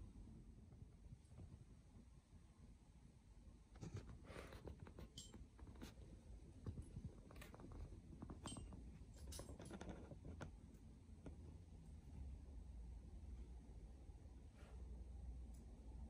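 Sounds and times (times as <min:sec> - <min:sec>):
faint low hum: 0:00.0 - 0:16.0
soft ticks and rustles: 0:03.7 - 0:11.7.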